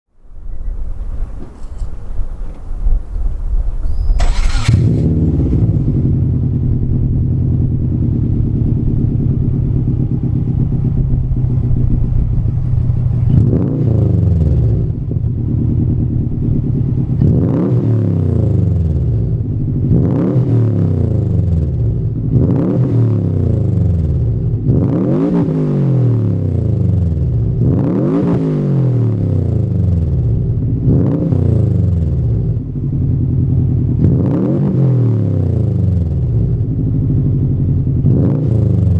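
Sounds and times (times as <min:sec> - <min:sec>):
car engine idling: 0:00.2 - 0:17.6, 0:18.5 - 0:20.2, 0:29.6 - 0:34.2, 0:35.7 - 0:38.9
car engine revving: 0:03.9 - 0:38.9.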